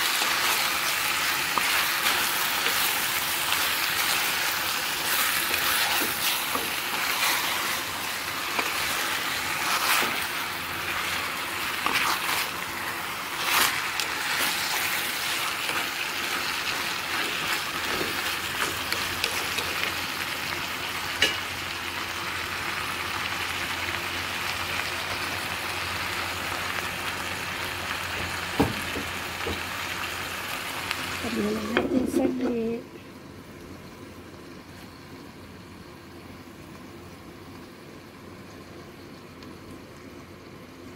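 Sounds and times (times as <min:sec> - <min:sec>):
chicken sizzling in a pot: 0:00.0 - 0:40.9.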